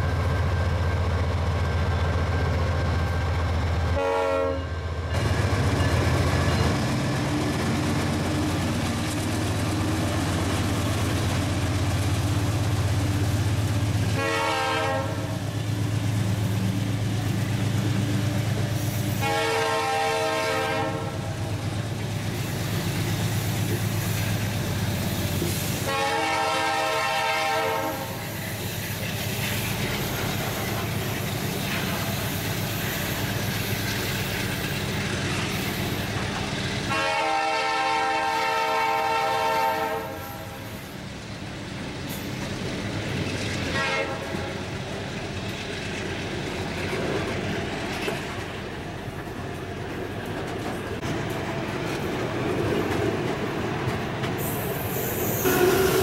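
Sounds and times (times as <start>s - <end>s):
locomotive engines humming: 0.0s - 56.0s
train wagons rolling past: 0.0s - 56.0s
train horn blasts: 3.9s - 4.7s, 14.1s - 15.4s, 19.2s - 21.4s, 25.8s - 28.2s, 36.9s - 40.8s, 43.7s - 44.6s, 55.2s - 56.0s.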